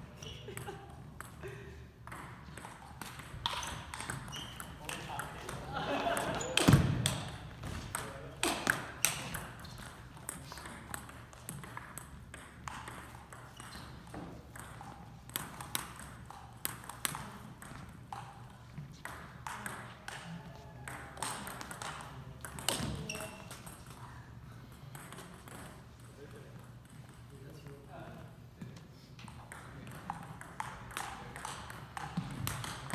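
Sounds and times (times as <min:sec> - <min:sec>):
table tennis ball clicking: 0:07.9 - 0:20.3.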